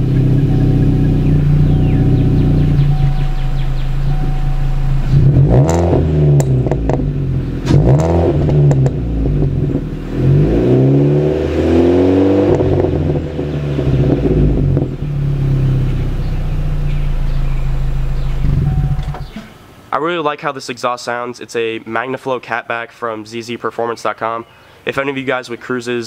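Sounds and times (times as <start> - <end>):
car exhaust idling and revving: 0.0 - 19.4.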